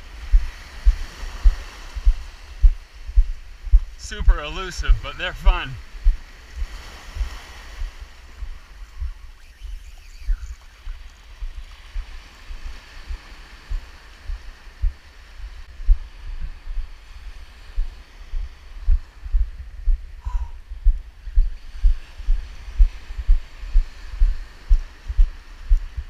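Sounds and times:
low thumps: 0:00.3 - 0:03.9, 0:18.9 - 0:25.9
surf breaking on beach: 0:04.0 - 0:09.3.

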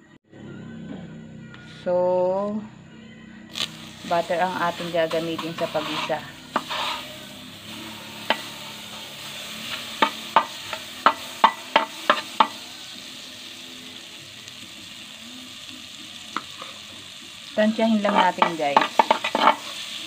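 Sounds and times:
butter sizzling in a pot: 0:03.5 - 0:20.0
spatula tapping a pot: 0:10.0 - 0:12.6, 0:18.1 - 0:19.6.

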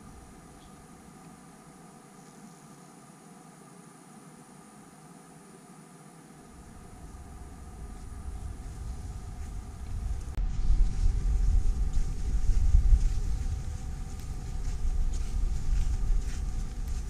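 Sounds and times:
wind buffeting microphone: 0:06.5 - 0:17.0.

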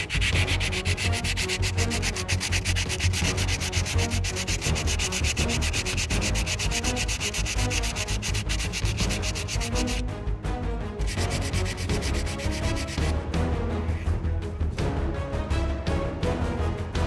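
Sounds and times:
sandpaper rubbing on plastic: 0:00.0 - 0:10.0, 0:11.0 - 0:13.1.

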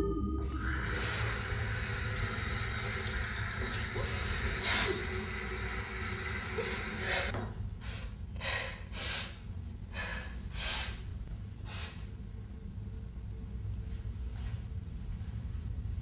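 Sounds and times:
tap running water: 0:00.6 - 0:07.5.

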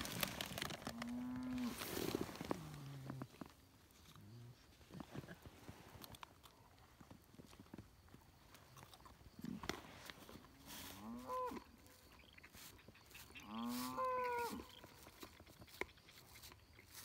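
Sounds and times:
cow mooing: 0:13.4 - 0:14.8.

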